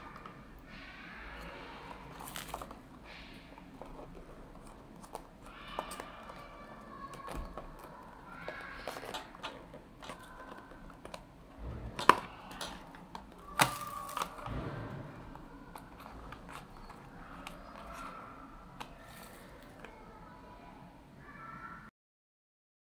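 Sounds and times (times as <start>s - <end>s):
plastic packaging rubbing and tapping: 7.1s - 20.0s.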